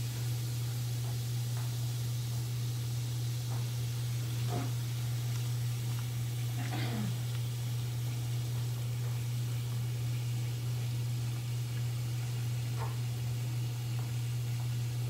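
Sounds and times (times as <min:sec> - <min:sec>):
bath bomb fizzing in water: 0:00.0 - 0:15.0.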